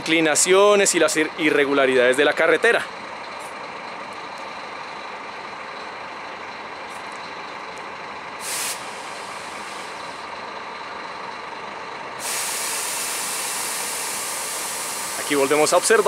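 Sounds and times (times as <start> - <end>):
air suspension hissing: 8.4 - 10.3, 12.2 - 16.0.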